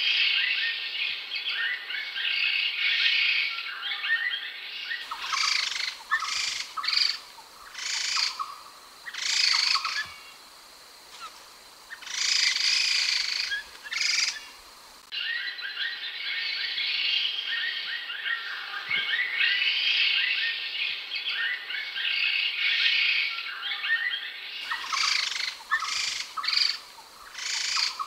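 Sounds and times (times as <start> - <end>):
bird calling: 5.0 - 10.4, 11.1 - 14.6, 23.7 - 28.0.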